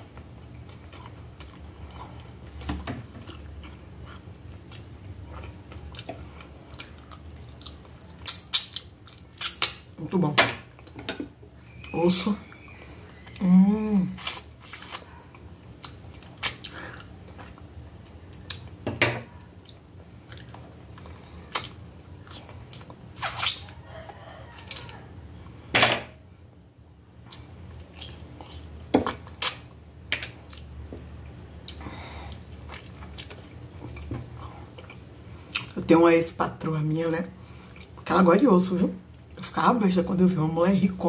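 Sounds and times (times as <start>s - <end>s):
quiet chewing: 0.0s - 9.9s, 14.2s - 25.6s, 26.6s - 35.8s
wet sucking and smacking: 15.8s - 17.6s, 19.6s - 23.8s.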